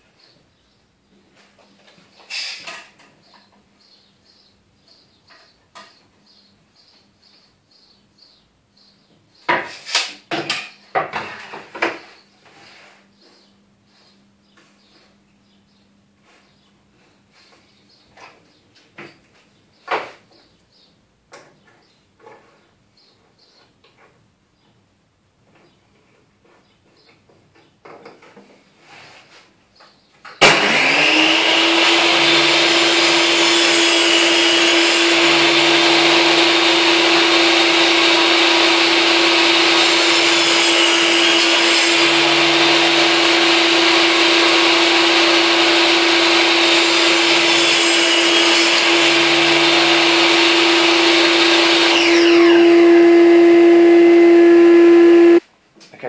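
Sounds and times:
table saw whining: 0:30.4 - 0:55.4
steady motor hum: 0:31.3 - 0:55.4.

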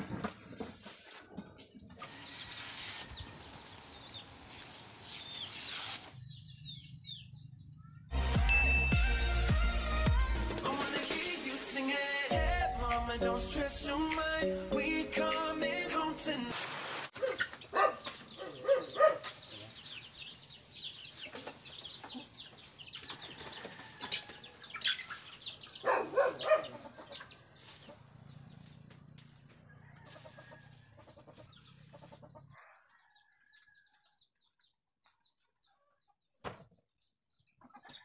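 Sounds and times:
chickens clucking: 0:17.1 - 0:34.1, 0:35.0 - 0:38.0.

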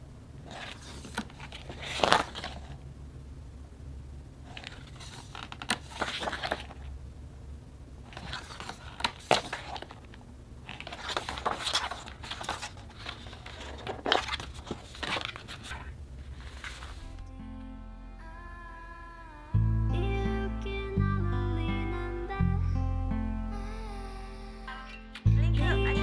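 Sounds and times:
packaging rustling and crinkling: 0:00.4 - 0:02.8, 0:04.4 - 0:06.9, 0:08.1 - 0:17.2
soft guitar music: 0:17.0 - 0:26.0.

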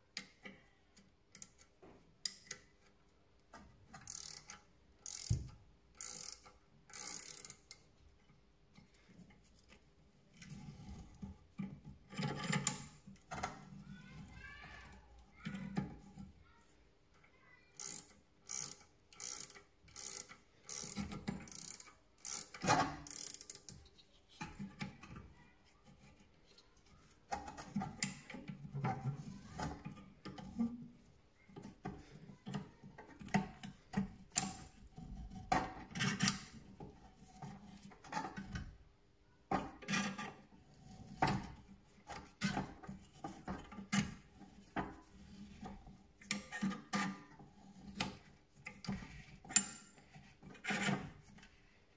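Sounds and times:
metallic clicks and scrapes: 0:08.8 - 0:13.8, 0:17.8 - 0:38.7, 0:39.7 - 0:51.8.

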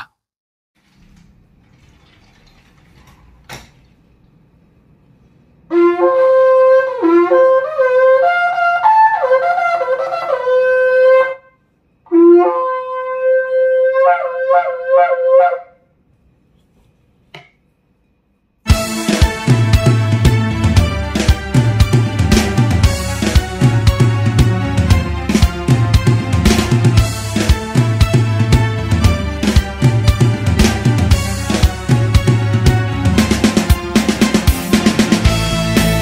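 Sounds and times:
shofar blasts: 0:05.7 - 0:15.8.

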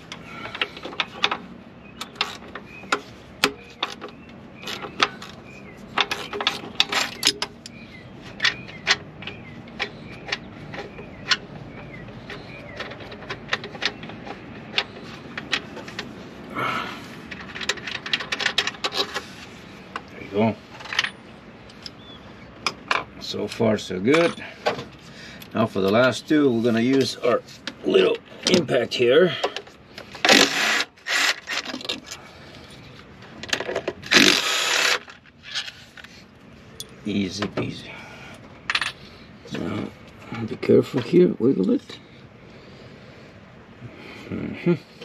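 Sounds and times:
impact driver burst: 0:34.1 - 0:35.0.

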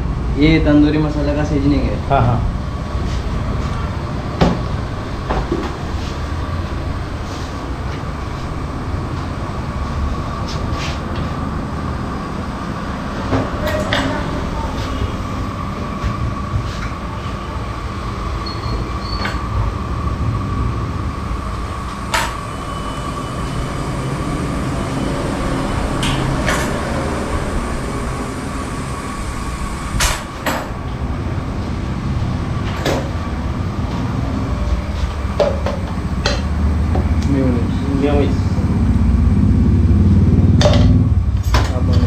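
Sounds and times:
low machine hum: 0:00.0 - 0:42.0
faint thin whine: 0:21.1 - 0:30.4.

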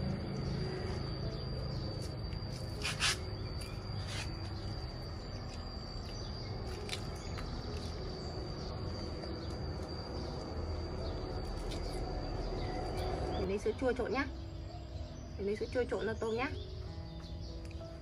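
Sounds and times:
high-pitched whine: 0:00.0 - 0:15.5
outdoor background noise: 0:00.0 - 0:18.0
fruit shells crackling: 0:05.4 - 0:13.3.

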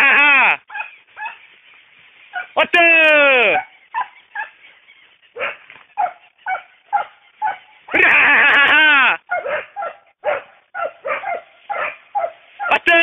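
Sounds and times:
dogs barking: 0:00.7 - 0:01.5, 0:02.3 - 0:02.6, 0:03.5 - 0:08.0, 0:09.2 - 0:12.9.

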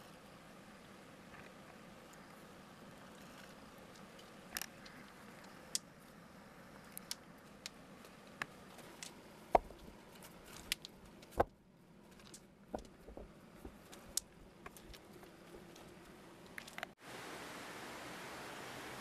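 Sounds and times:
stones clacking onto stone wall: 0:06.9 - 0:17.0
heavy stone thuds: 0:09.5 - 0:09.8, 0:12.7 - 0:13.9.

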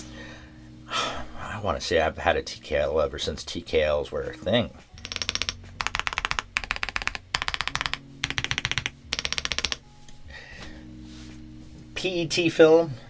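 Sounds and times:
mechanical keyboard typing: 0:05.0 - 0:09.8.

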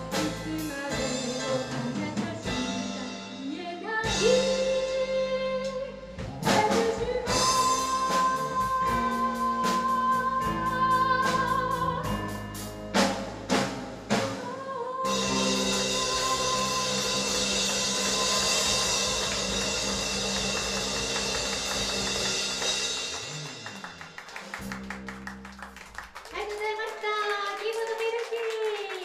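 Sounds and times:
drum and cymbal hits: 0:00.0 - 0:05.0, 0:06.1 - 0:10.6, 0:15.1 - 0:24.8
bass guitar: 0:00.0 - 0:14.5, 0:15.1 - 0:26.3
woman singing: 0:00.1 - 0:12.4, 0:14.4 - 0:19.4.

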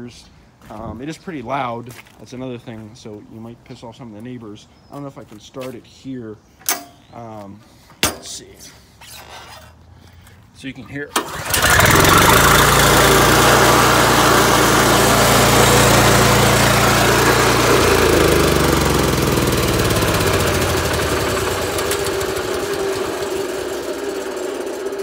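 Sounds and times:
stump grinder engine running: 0:11.2 - 0:25.0.

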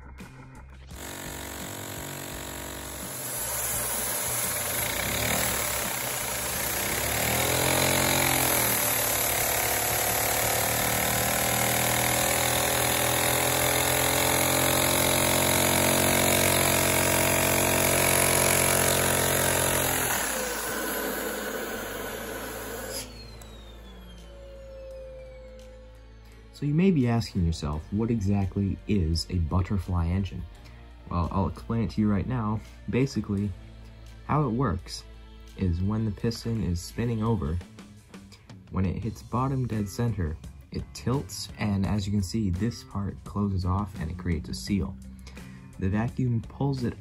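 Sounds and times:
small engine rapid clatter: 0:00.9 - 0:23.6
vacuum cleaner drone: 0:01.0 - 0:26.5.

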